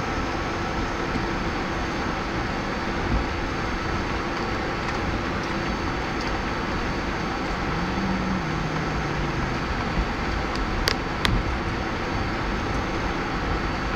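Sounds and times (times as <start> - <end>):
lower hum: 0.8 - 13.9.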